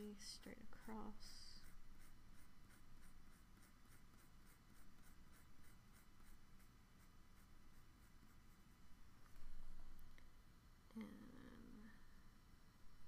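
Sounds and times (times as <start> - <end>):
pencil scratching on paper: 0.0 - 9.0.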